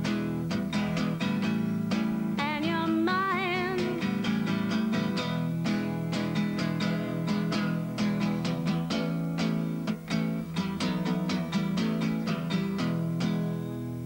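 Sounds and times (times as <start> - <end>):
acoustic guitar strumming: 0.0 - 14.0
woman singing with vibrato: 2.4 - 4.5.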